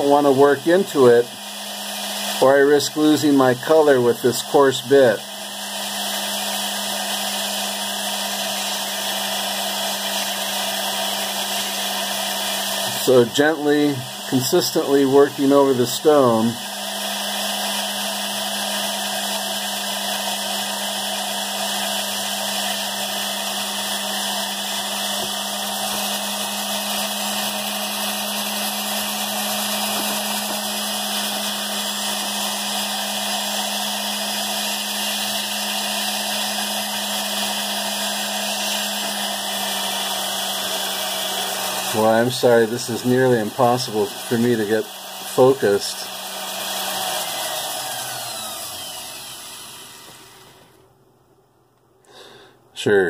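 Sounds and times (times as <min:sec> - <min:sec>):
rotary tool grinding stone: 0:21.5 - 0:50.7.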